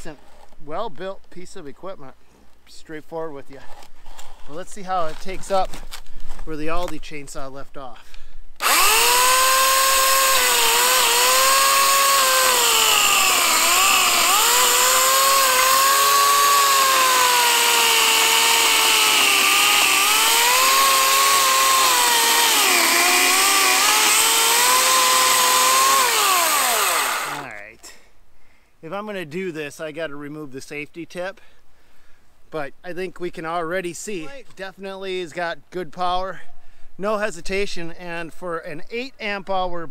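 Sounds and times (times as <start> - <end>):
electric chainsaw motor whine: 8.6 - 27.5.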